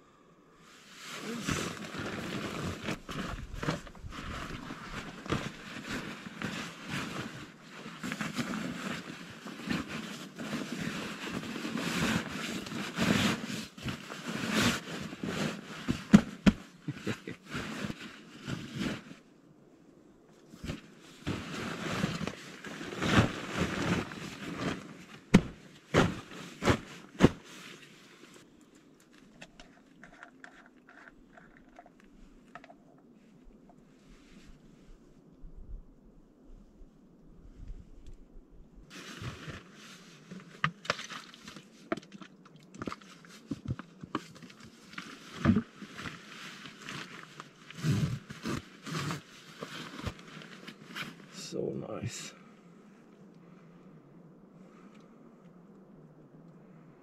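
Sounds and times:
backpack rustling and scraping: 0.8s - 19.3s, 20.4s - 31.9s, 38.9s - 41.9s, 43.0s - 51.4s.

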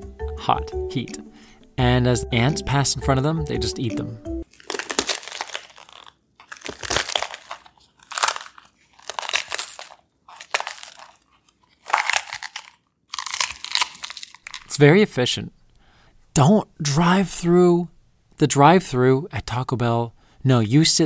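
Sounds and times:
crunchy chewing: 4.4s - 14.7s.

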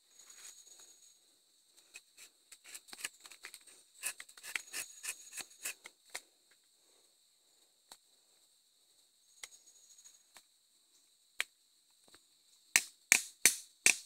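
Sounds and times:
knife scraping tree bark: 4.0s - 5.8s.

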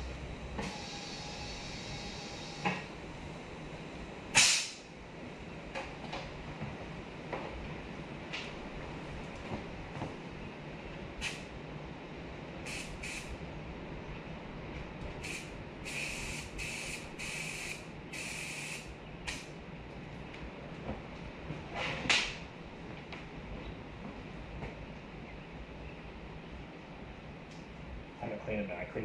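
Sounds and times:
low background hum: 0.0s - 29.0s
hissing spray bursts: 0.6s - 2.7s, 4.4s - 4.8s, 11.2s - 11.5s, 12.7s - 13.3s, 15.2s - 19.5s.

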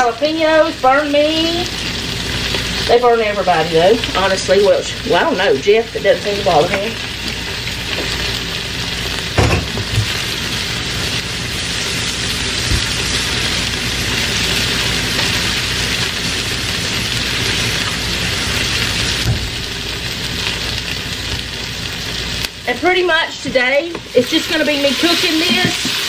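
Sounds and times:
vegetables sizzling in a pot: 0.0s - 26.0s
knock on pot: 9.4s - 10.1s.

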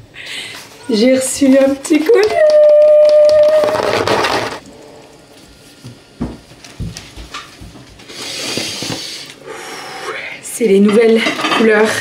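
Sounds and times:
woman humming excitedly: 2.1s - 3.8s
cardboard tearing: 3.6s - 4.6s.

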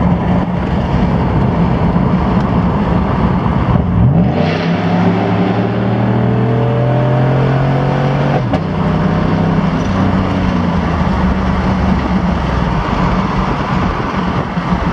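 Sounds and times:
road and wind noise: 0.0s - 14.9s
truck engine revving hard: 3.7s - 14.9s.

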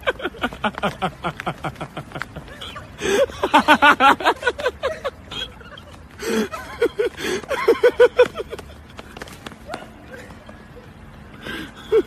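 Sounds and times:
person laughing: 0.0s - 9.0s.

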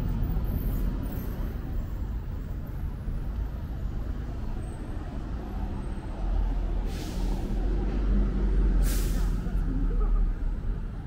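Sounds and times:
street traffic: 0.0s - 11.0s
air brake hiss: 6.8s - 7.6s, 8.8s - 9.5s.

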